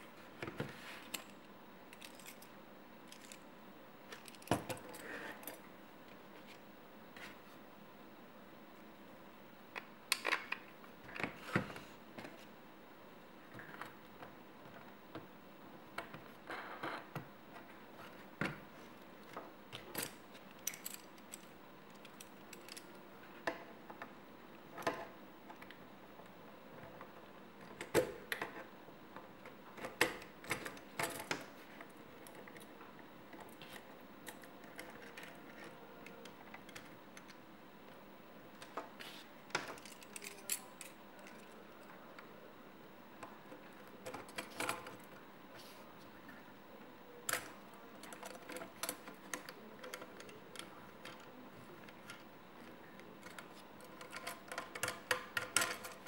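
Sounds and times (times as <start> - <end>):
metal parts clicking and rattling: 1.0 - 3.5, 4.1 - 5.6, 19.9 - 23.0, 39.7 - 41.6, 53.2 - 56.0.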